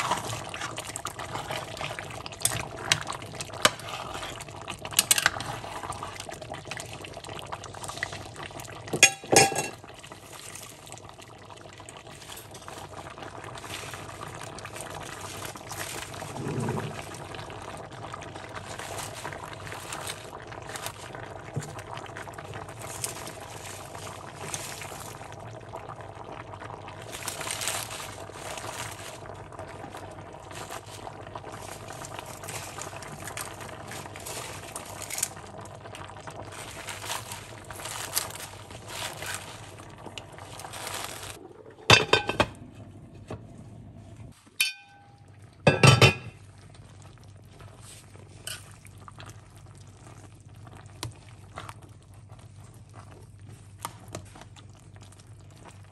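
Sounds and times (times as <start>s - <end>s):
stew bubbling: 0.0s - 55.9s.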